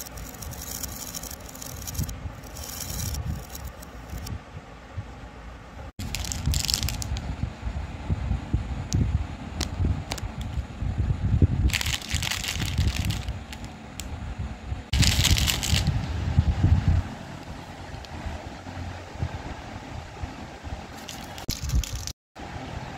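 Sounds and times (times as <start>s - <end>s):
plastic wrappers crinkling: 6.0s - 7.1s, 11.7s - 13.7s, 15.0s - 15.9s.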